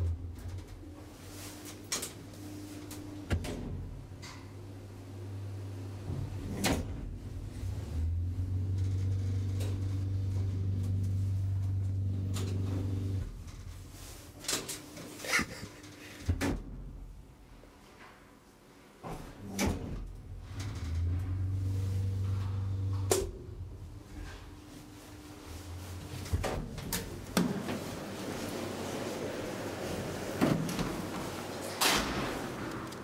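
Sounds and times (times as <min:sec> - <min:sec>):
lift machinery humming: 0:02.2 - 0:14.2, 0:20.2 - 0:33.0.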